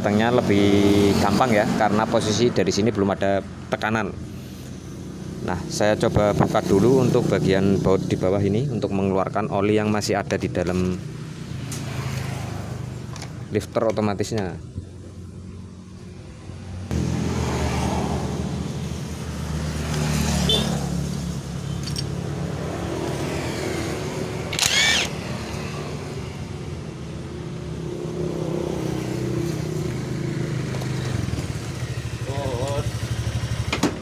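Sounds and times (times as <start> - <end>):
motor running: 24.5 - 25.2.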